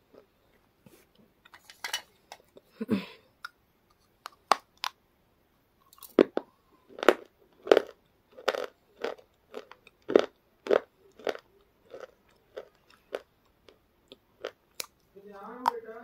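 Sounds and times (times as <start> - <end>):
chips crunching: 5.8 - 15.0.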